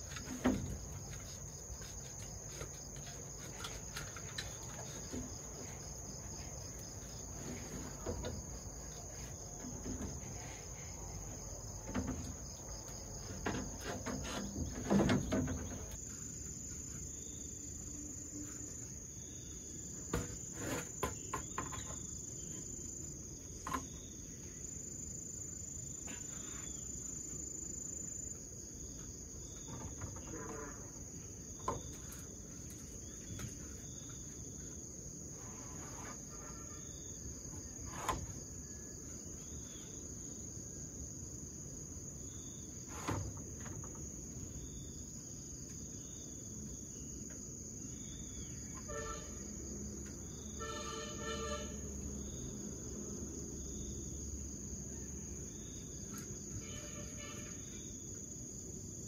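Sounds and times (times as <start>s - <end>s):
bamboo poles and sheets knocking: 0.0s - 6.0s, 11.8s - 16.2s, 20.1s - 22.2s
insects chirring: 0.0s - 59.0s.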